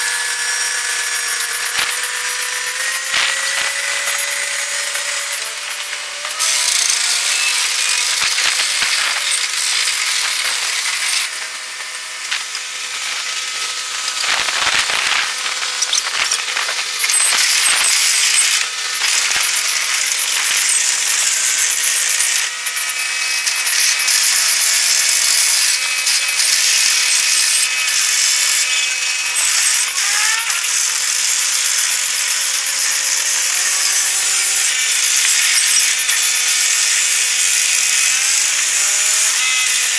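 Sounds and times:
sped-up mechanical chatter: 0:00.4 - 0:24.6.

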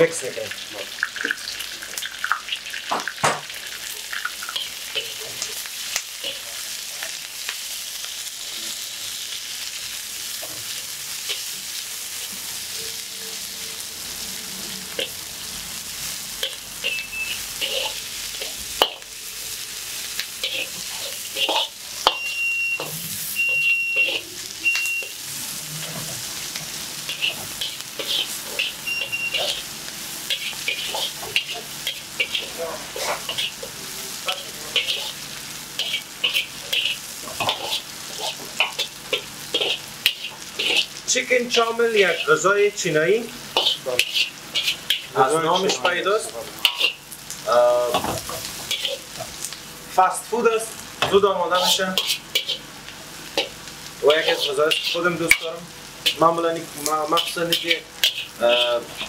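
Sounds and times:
food sizzling in a wok: 0:00.0 - 0:59.0
metal spatula scraping pan: 0:16.4 - 0:19.0, 0:20.4 - 0:24.3, 0:25.0 - 0:26.4, 0:27.1 - 0:35.2, 0:35.8 - 0:41.0, 0:41.9 - 0:42.4, 0:43.5 - 0:47.0, 0:47.9 - 0:49.3, 0:51.5 - 0:52.7, 0:53.4 - 0:56.2, 0:57.1 - 0:59.0
short high squeaks: 0:28.2 - 0:29.6.

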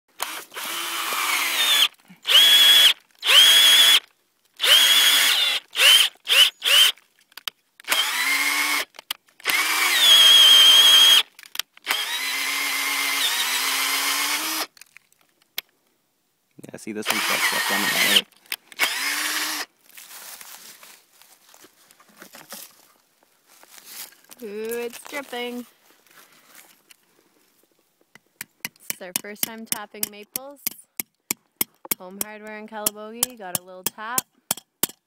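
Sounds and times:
power drill boring into wood: 0:00.1 - 0:07.0, 0:07.8 - 0:14.8, 0:17.0 - 0:19.7.

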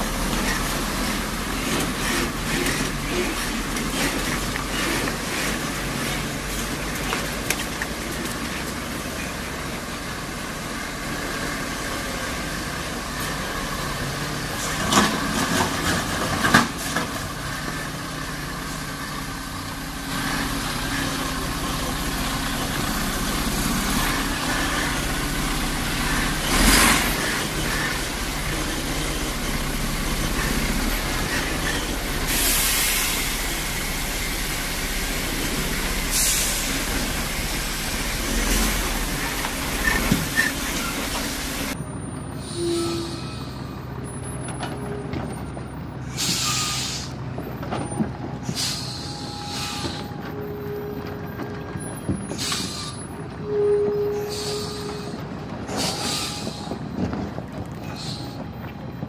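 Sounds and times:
truck diesel engine running: 0:00.0 - 0:59.0
knocks and clunks from truck: 0:47.2 - 0:48.6, 0:54.9 - 0:59.0.

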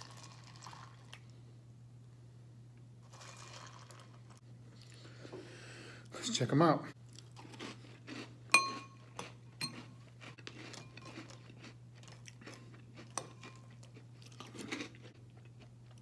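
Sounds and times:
chewing and crunching cereal: 0:00.0 - 0:01.4, 0:03.0 - 0:05.2, 0:07.0 - 0:16.0
steady low hum: 0:00.0 - 0:16.0
spoon clinking against glass bowl: 0:08.5 - 0:09.0.

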